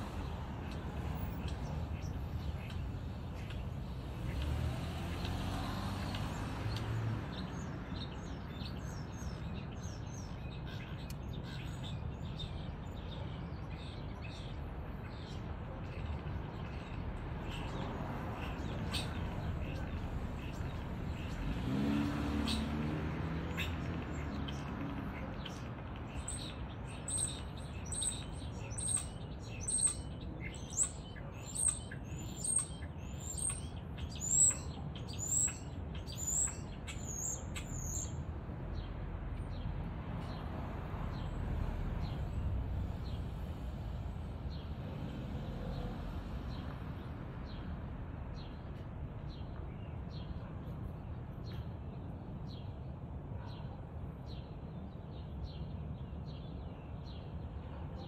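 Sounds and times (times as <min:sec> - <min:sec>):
bird chirping: 0:24.4 - 0:38.2.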